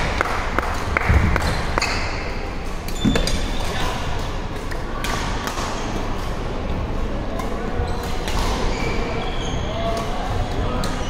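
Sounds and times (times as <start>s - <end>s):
sneaker squeaks on hardwood floor: 3.0s - 3.8s, 8.6s - 9.8s.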